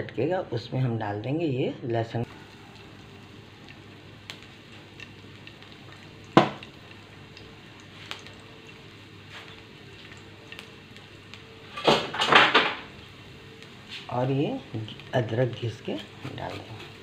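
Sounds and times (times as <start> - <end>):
garlic frying in oil: 2.3 - 17.0.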